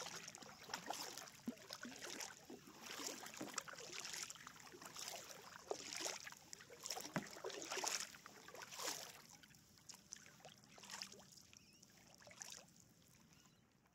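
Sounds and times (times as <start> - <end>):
water dripping and gurgling: 0.0 - 9.1
paddle splashing in water: 0.0 - 13.4.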